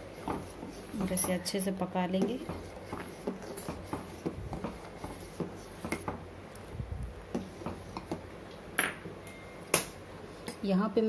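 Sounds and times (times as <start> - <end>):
metal spoon stirring in a pot: 0.0 - 6.2.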